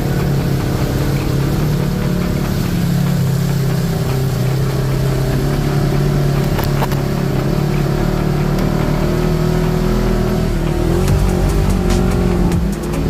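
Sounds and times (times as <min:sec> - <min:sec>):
vehicle engine running: 0:00.0 - 0:13.0.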